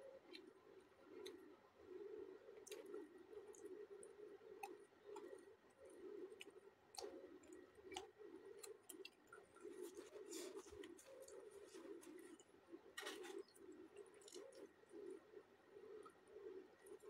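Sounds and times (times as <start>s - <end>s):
fingers picking food from plate: 2.6s - 15.2s.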